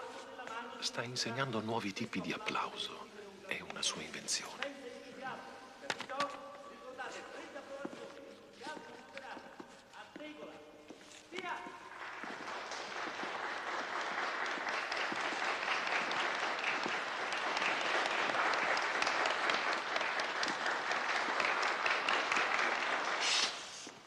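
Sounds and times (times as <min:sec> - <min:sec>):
crowd clapping: 0:11.6 - 0:24.0.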